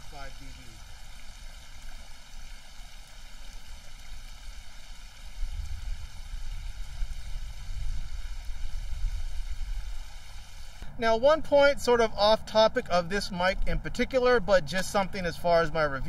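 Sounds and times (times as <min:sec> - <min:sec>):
water spilling over weir: 0:00.0 - 0:10.9.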